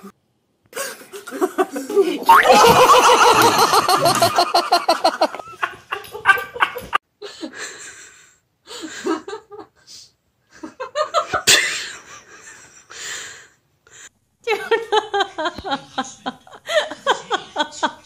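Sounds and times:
person laughing: 0.8 - 7.0.

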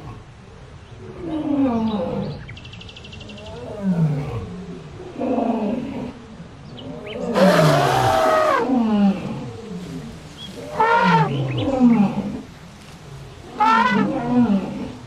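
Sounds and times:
deep animal calls: 6.8 - 8.8, 13.5 - 15.0
harsh animal call: 7.1 - 8.7, 13.5 - 14.9.

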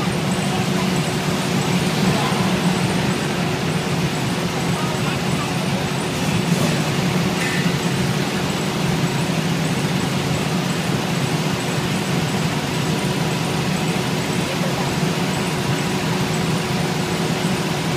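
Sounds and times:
low engine drone: 0.0 - 17.9.

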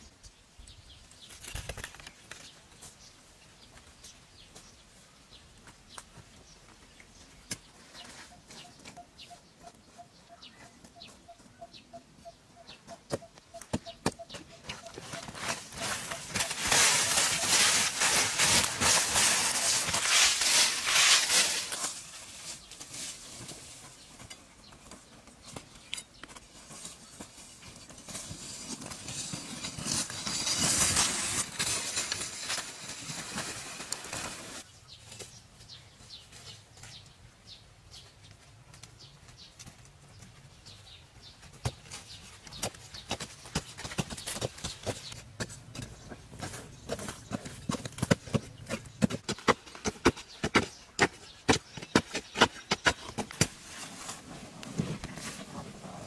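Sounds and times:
hand tools scraping dry soil: 7.3 - 9.7, 12.8 - 37.1, 41.3 - 56.0.

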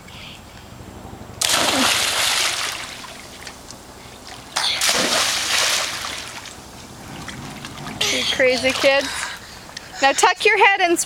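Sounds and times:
children splashing into a pool: 1.4 - 3.2, 4.5 - 6.5.

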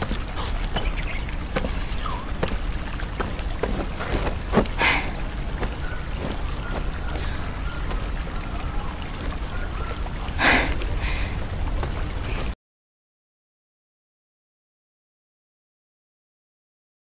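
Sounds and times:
breathy rushes of noise: 3.8 - 5.4, 10.4 - 11.6.

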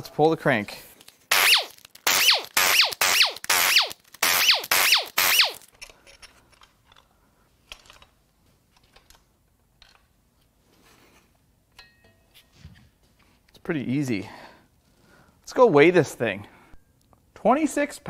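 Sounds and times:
metal parts clicking: 1.0 - 10.1
power driver whining: 1.3 - 5.6.

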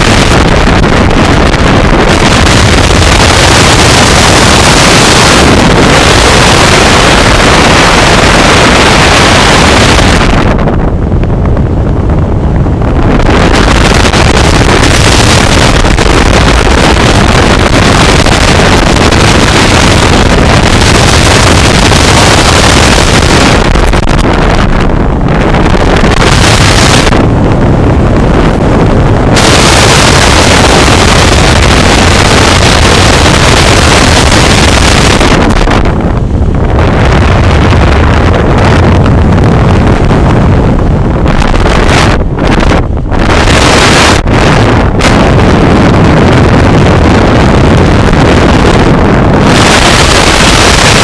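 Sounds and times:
wind buffeting microphone: 0.0 - 51.0.

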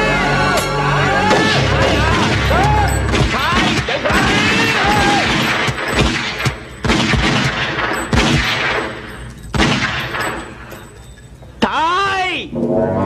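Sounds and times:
handgun fire: 1.3 - 10.6.

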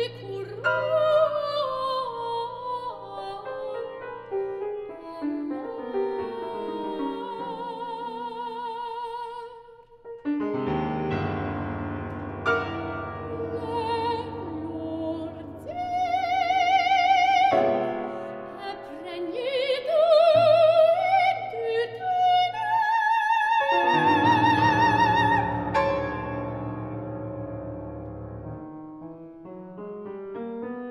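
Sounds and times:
woman singing operatically: 0.0 - 4.1, 4.9 - 9.8, 13.2 - 25.6
grand piano: 0.0 - 30.9.

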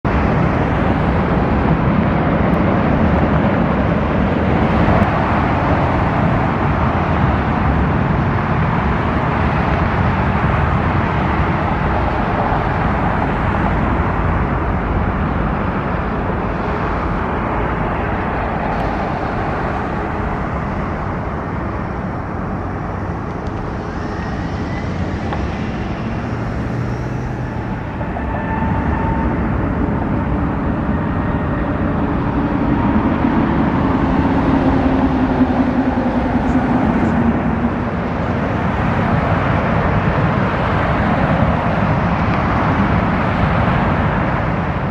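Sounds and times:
jet engines rumbling: 0.0 - 44.9.

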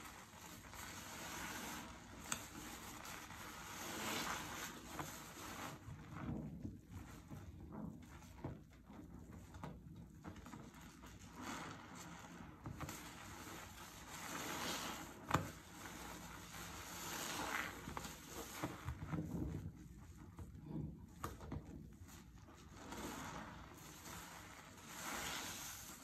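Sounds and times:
sponge squelching in suds: 0.0 - 6.3, 11.4 - 19.2, 22.7 - 26.0.

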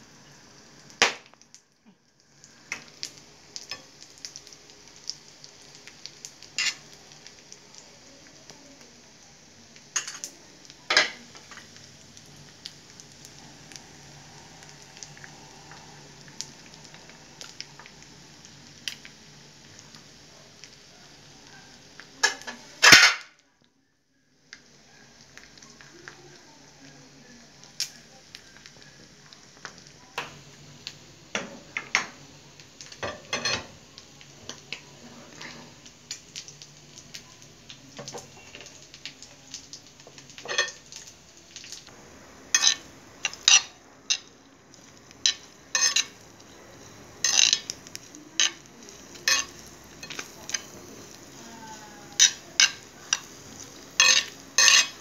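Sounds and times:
meat sizzling in oil: 0.0 - 55.0
metal spoon scraping pan: 45.3 - 46.2, 49.2 - 50.2.

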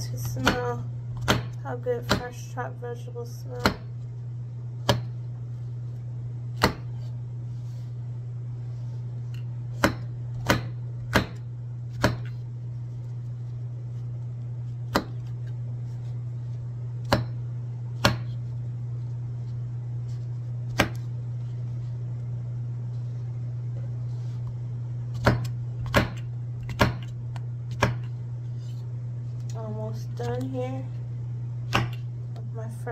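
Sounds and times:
low hum: 0.0 - 32.9
knife chopping on wooden board: 0.2 - 2.3, 4.8 - 5.2, 6.6 - 7.0, 9.8 - 12.4, 14.9 - 15.3, 17.0 - 17.4, 18.0 - 18.4, 20.7 - 21.1, 25.2 - 27.1, 27.7 - 28.1, 31.7 - 32.0.

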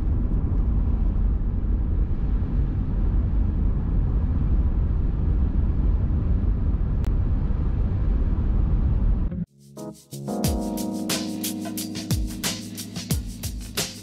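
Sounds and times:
car engine and road noise: 0.0 - 9.5.

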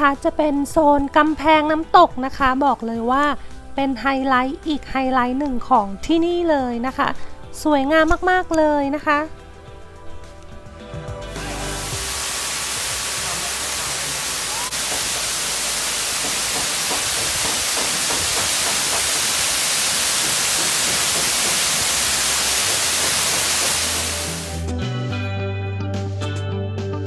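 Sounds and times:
waterfall splashing into pond: 11.3 - 24.6.

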